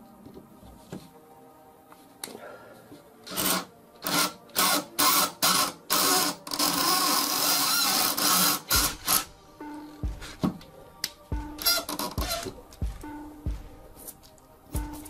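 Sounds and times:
electric drill drilling metal: 3.3 - 9.3.

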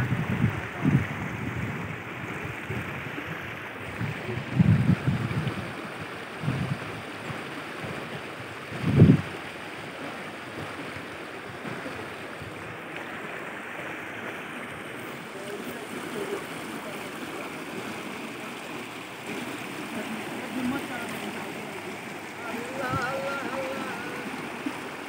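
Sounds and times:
wind buffeting the microphone: 0.0 - 12.8, 18.9 - 24.9
river water rushing over rocks: 0.0 - 25.0.

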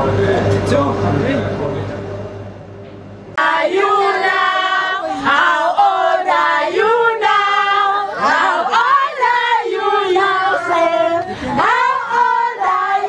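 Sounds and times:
women singing together: 3.4 - 13.0.

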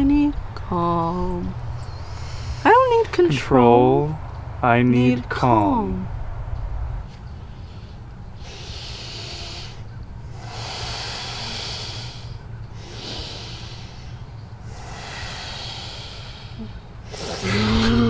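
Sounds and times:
person breathing deeply: 1.9 - 2.8, 7.3 - 18.0.

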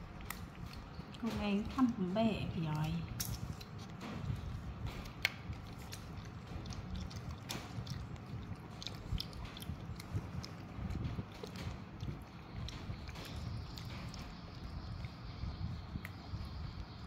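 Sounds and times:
monkey chewing and biting: 0.0 - 17.0.

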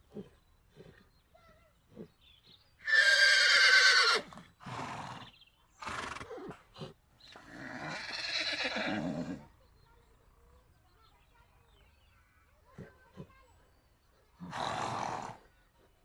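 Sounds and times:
horse whinnying: 2.8 - 6.6, 7.3 - 9.4.

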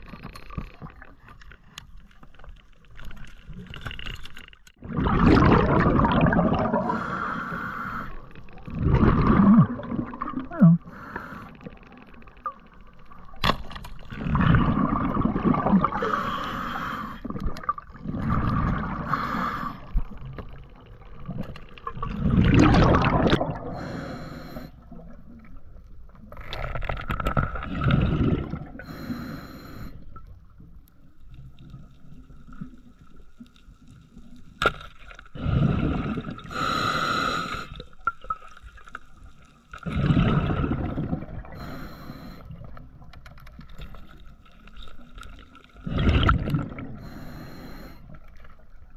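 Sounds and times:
exhaled bubbles bursting: 4.8 - 7.2, 8.5 - 10.9, 14.1 - 16.3, 17.2 - 19.1, 20.0 - 23.9, 26.6 - 28.9, 35.4 - 36.6, 39.8 - 41.7, 45.7 - 47.1
diver breathing through regulator: 6.7 - 8.3, 10.8 - 11.8, 16.0 - 17.3, 19.0 - 20.0, 23.6 - 24.8, 28.8 - 30.0, 35.4 - 37.8, 41.4 - 42.6, 45.9 - 48.2.

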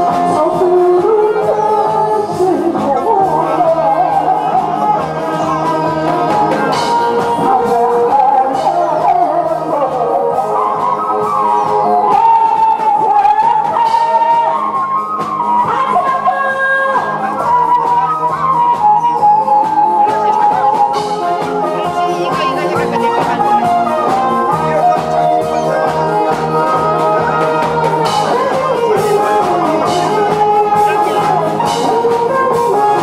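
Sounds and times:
backing music with steady beat: 0.0 - 33.0
woman singing into a microphone: 0.0 - 33.0.

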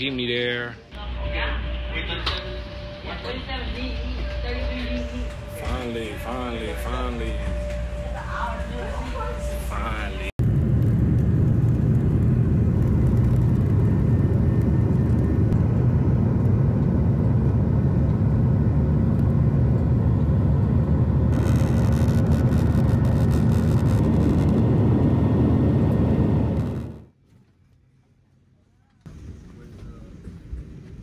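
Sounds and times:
jet engines at takeoff: 10.0 - 27.1.

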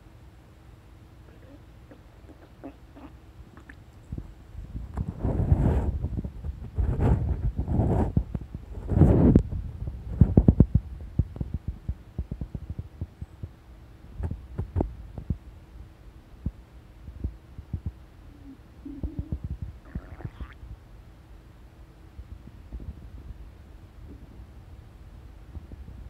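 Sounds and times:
stomach gurgling: 18.4 - 20.6.

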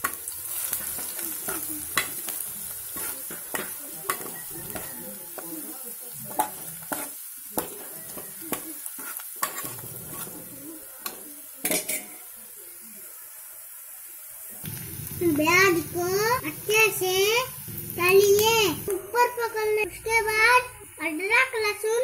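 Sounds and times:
onions sizzling in hot oil: 0.0 - 22.0
spatula scraping a pot: 2.9 - 5.0, 6.3 - 10.6.

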